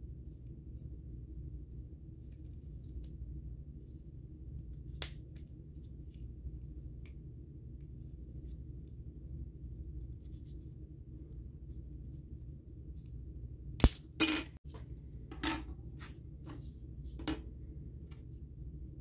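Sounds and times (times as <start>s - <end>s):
low hum: 0.0s - 19.0s
parts clattering on hard surface: 14.2s - 15.8s.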